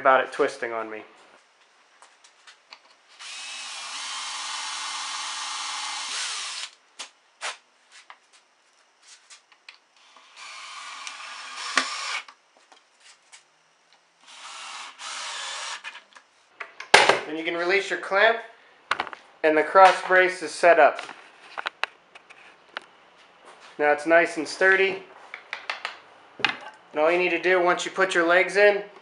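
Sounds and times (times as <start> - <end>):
cordless drill boring wood: 3.2 - 6.8, 10.0 - 12.4, 14.2 - 16.0.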